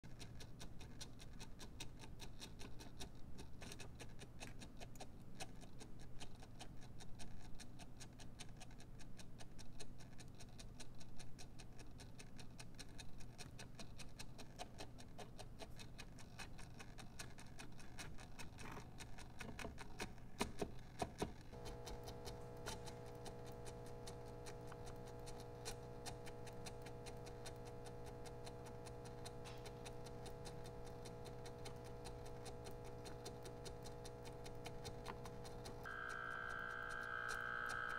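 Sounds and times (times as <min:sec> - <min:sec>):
fast ticking clicks: 0:00.1 - 0:37.9
steady low hum: 0:21.5 - 0:37.9.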